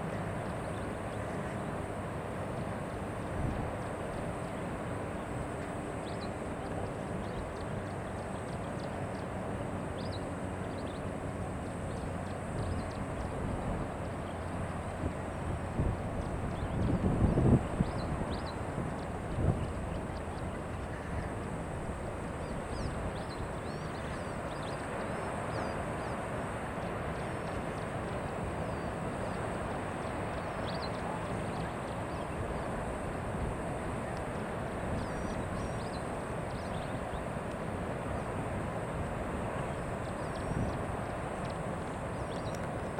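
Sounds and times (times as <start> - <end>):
wind on microphone: 12.2 - 23.8.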